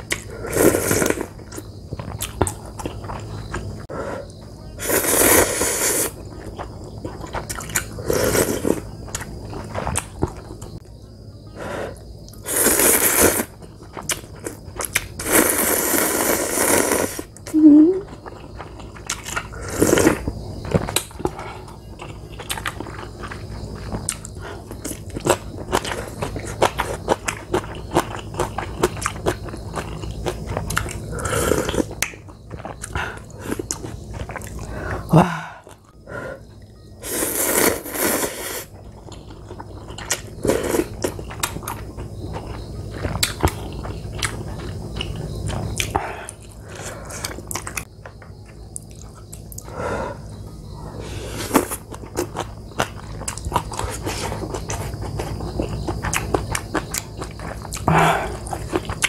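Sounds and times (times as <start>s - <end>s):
person chewing: 0.0s - 3.7s, 4.3s - 10.8s, 11.9s - 36.0s, 37.0s - 59.0s
slurping noodles: 0.4s - 1.3s, 4.8s - 6.2s, 7.9s - 8.8s, 12.5s - 13.5s, 15.2s - 17.3s, 19.5s - 20.2s, 37.0s - 38.7s.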